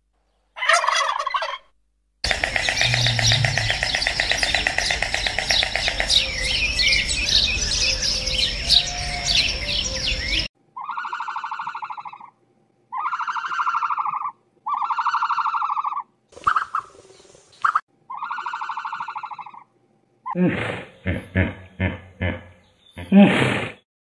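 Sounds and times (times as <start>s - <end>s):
small birds chirping: 2.2s - 10.5s, 20.9s - 23.2s
buzzy pulsing calls: 2.2s - 12.3s.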